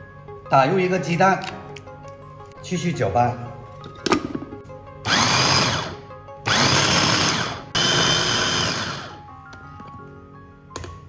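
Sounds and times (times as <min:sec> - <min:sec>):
food chopper motor whirring: 0:05.0 - 0:09.2.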